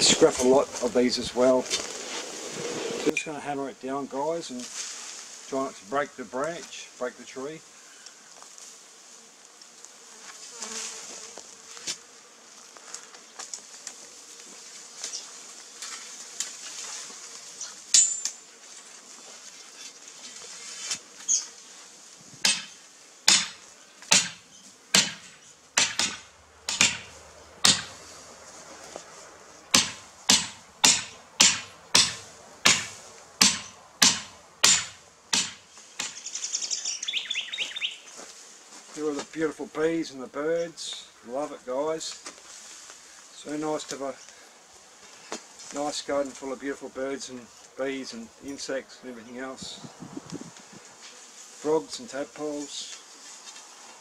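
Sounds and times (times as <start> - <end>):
hammer blows on steel fence post: 22.4 - 28.0, 29.7 - 36.2.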